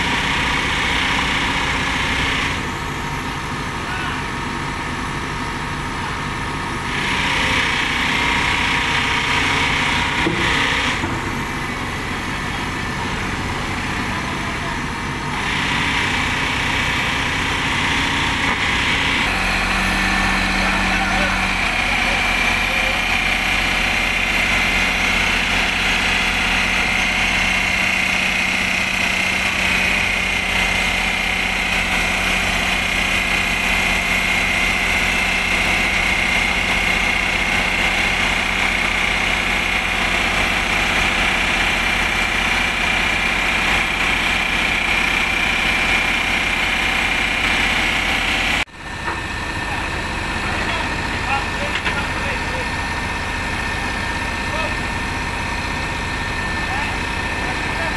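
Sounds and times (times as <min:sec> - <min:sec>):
excavator diesel engine running: 0:00.0 - 0:57.9
hydraulic pump growling: 0:00.0 - 0:57.9.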